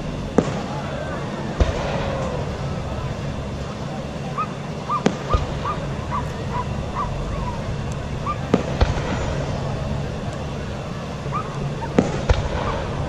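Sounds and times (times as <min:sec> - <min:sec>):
fireworks bangs: 0:00.0 - 0:13.0
high chirping calls: 0:04.3 - 0:08.5, 0:11.2 - 0:12.0.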